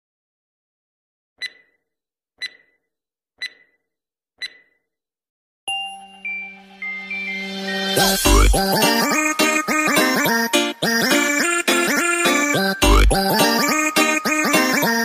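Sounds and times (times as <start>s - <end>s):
short electronic beeps: 1.4s - 1.8s, 2.4s - 2.8s, 3.4s - 3.8s, 4.4s - 4.7s, 5.7s - 8.5s
sustained electronic tone: 5.7s - 8.7s.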